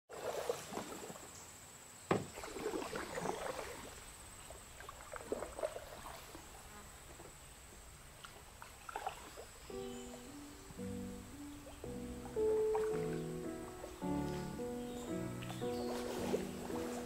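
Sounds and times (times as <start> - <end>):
paddle splashing water: 0.1 - 1.5, 2.1 - 17.0
paddle knocking on hull: 2.1 - 3.0, 9.8 - 17.0.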